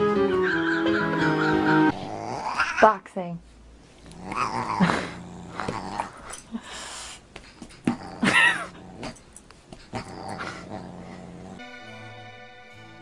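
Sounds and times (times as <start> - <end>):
dog growling in play: 1.9 - 2.9, 4.0 - 6.6, 7.7 - 11.7.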